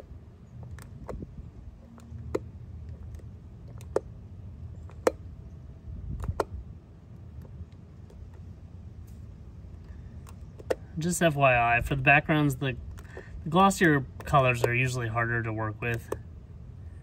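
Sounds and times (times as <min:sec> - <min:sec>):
low steady rumble: 0:00.0 - 0:17.0
sharp clicks of peeling decal: 0:00.6 - 0:04.1, 0:04.8 - 0:05.3, 0:06.1 - 0:06.6, 0:09.8 - 0:10.9, 0:12.8 - 0:15.0, 0:15.9 - 0:16.3.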